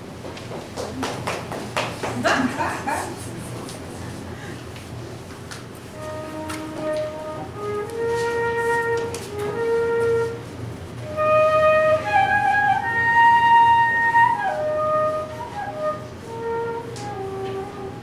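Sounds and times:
solo flute melody: 5.9s - 18.0s.

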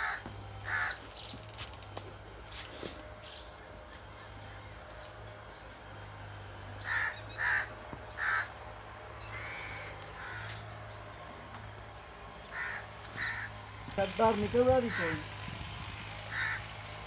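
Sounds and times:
crow cawing: 0.0s - 1.1s, 6.8s - 10.7s, 12.5s - 13.7s, 14.8s - 15.2s, 16.2s - 16.9s.

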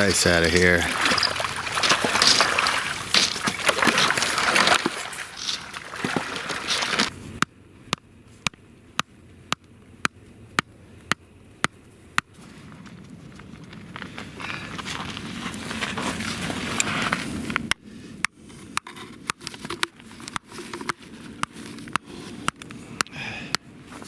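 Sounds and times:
water sloshing: 0.0s - 7.1s
ice chunks knocking: 0.9s - 7.1s.

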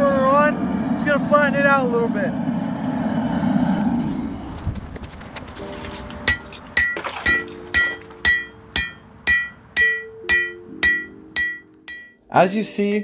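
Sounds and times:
hammer striking steel on anvil: 6.2s - 12.2s.

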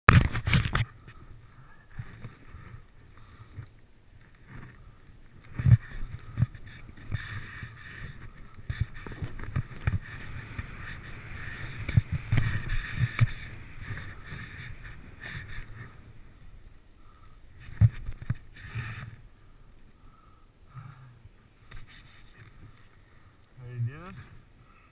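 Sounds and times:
wind noise on microphone: 0.1s - 16.8s, 17.5s - 19.2s
skis swishing through powder snow: 5.6s - 16.3s.

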